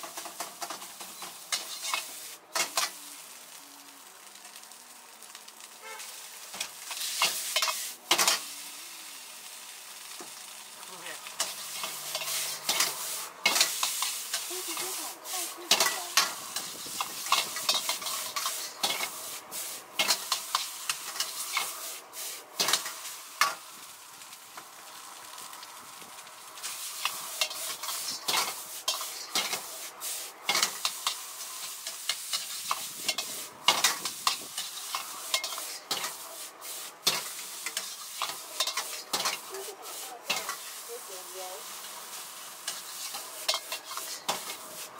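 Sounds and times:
rice sizzling in a wok: 0.0s - 44.9s
metal ladle scraping a wok: 1.2s - 3.0s, 5.9s - 8.4s, 11.4s - 23.6s, 26.6s - 40.9s, 42.6s - 44.9s.

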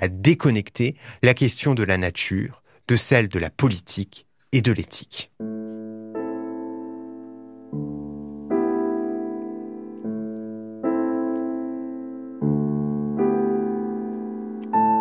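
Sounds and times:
slow piano music: 5.4s - 15.0s.

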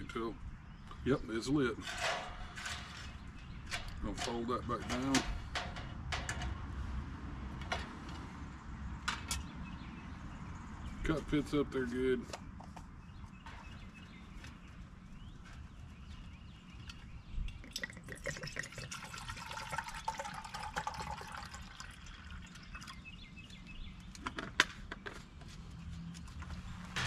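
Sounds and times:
water pouring into a metal cup: 17.6s - 23.0s.

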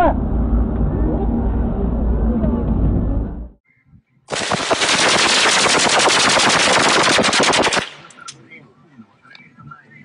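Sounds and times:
rifle automatic burst: 4.3s - 8.4s.

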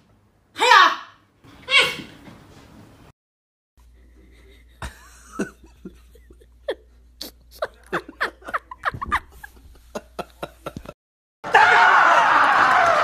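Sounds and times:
person giggling: 4.2s - 11.0s.

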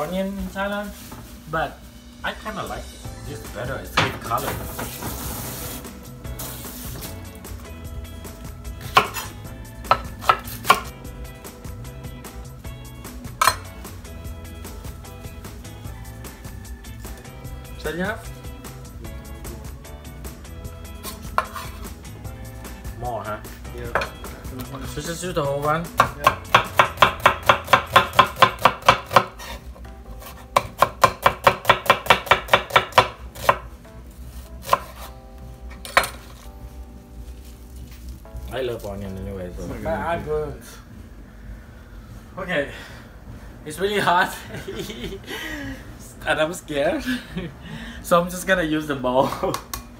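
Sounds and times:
knife chopping on wooden board: 8.8s - 10.9s, 21.0s - 21.8s, 25.9s - 33.7s, 34.6s - 35.1s.

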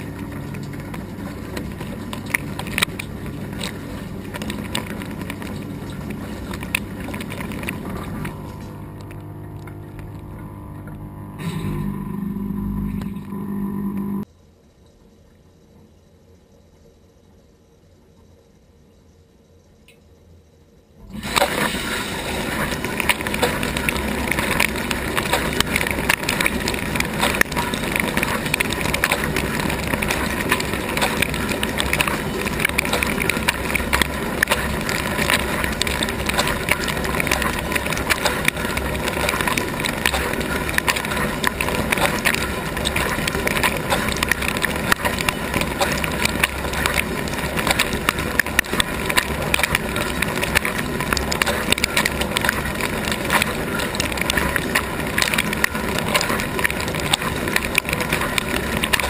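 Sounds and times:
water jets spattering on dishes: 0.0s - 12.0s, 21.0s - 59.0s
pump humming: 0.0s - 14.3s, 21.0s - 59.0s.

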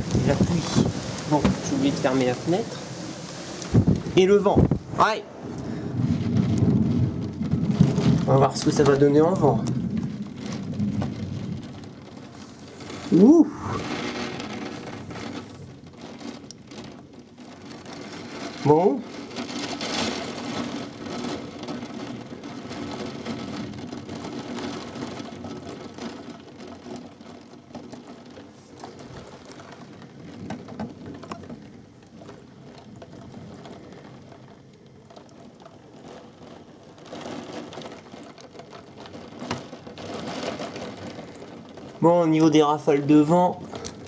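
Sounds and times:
gusting wind: 0.0s - 25.4s
heavy rain: 0.0s - 44.0s.

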